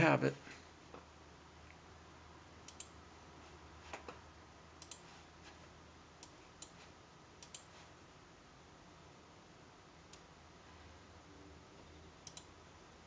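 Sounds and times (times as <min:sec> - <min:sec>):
faint steady low hum: 0:00.0 - 0:13.0
faint computer mouse clicks: 0:02.7 - 0:02.9, 0:04.8 - 0:05.0, 0:07.4 - 0:07.7, 0:12.2 - 0:12.5.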